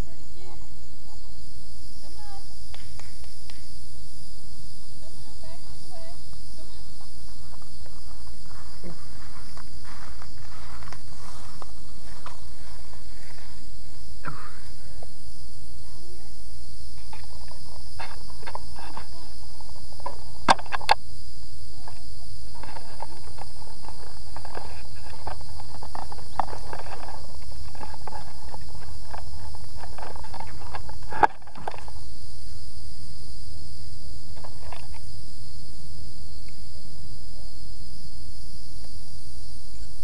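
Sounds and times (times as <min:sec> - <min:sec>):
high insect chorus: 0:00.0 - 0:40.0.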